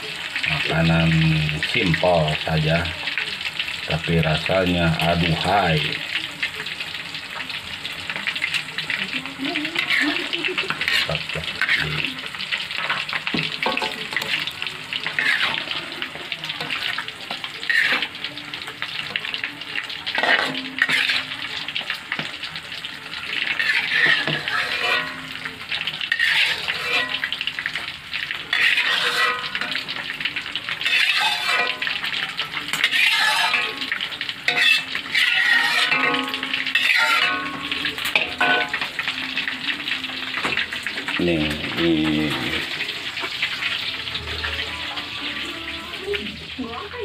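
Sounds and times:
sauce sizzling in a wok: 0.0s - 47.0s
metal spatula scraping pan: 9.7s - 39.1s.

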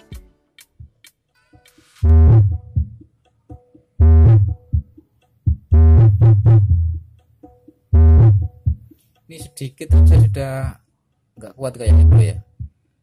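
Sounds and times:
distorted bass-heavy music: 2.0s - 2.8s, 4.0s - 4.7s, 5.7s - 7.0s, 7.9s - 8.6s, 9.9s - 10.6s, 11.8s - 12.4s.

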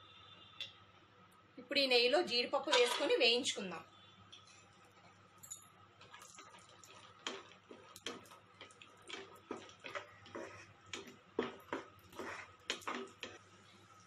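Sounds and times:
spatula stirring nuts in pan: 6.0s - 14.0s.

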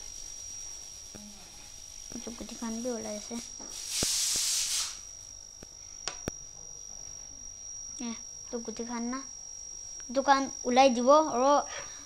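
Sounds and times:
hiss: 0.0s - 5.1s
cricket trilling: 0.0s - 12.0s.

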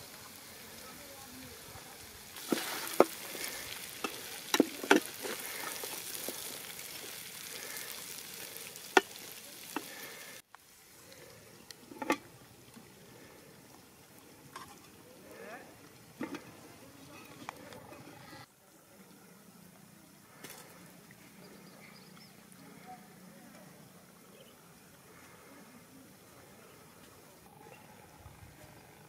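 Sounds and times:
curry sizzling in pot: 0.0s - 18.5s.

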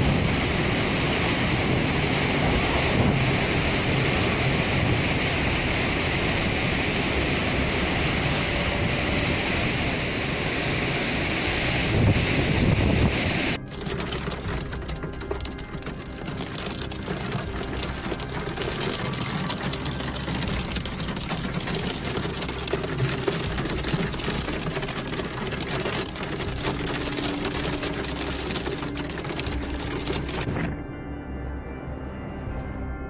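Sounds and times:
rain and hail drumming on car roof: 0.0s - 8.4s, 13.6s - 30.5s.

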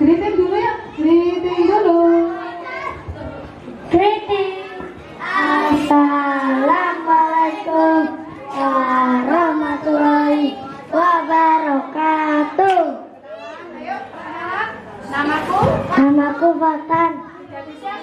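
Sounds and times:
children singing into microphone: 4.8s - 11.7s.

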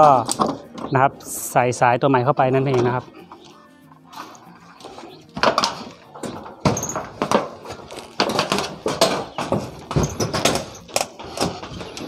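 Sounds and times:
knocks and bumps of handling: 0.0s - 1.0s, 4.8s - 12.0s.

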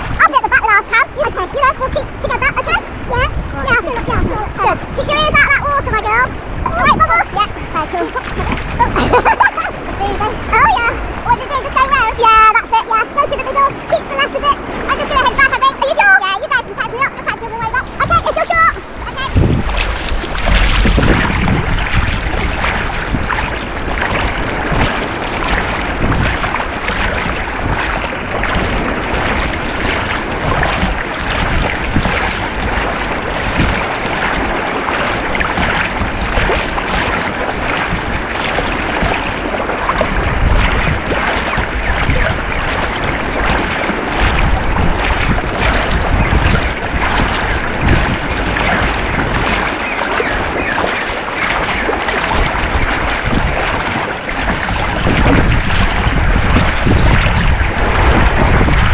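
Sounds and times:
water sloshing and splashing: 0.0s - 58.9s
arm strokes slapping water: 15.0s - 58.9s.

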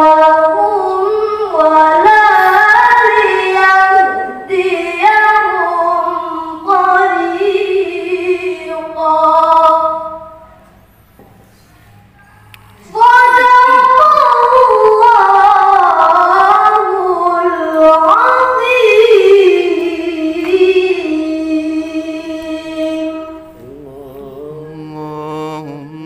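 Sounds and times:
boy reciting melodically: 0.0s - 26.0s
faint low wavering voice: 23.6s - 26.0s.

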